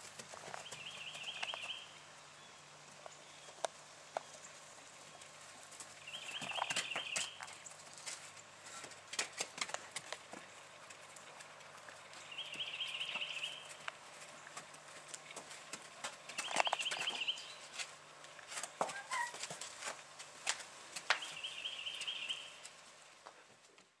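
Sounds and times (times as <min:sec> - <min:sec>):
horse hooves on dirt: 0:00.0 - 0:23.9
songbird warbling trill: 0:12.2 - 0:13.7, 0:21.2 - 0:22.6.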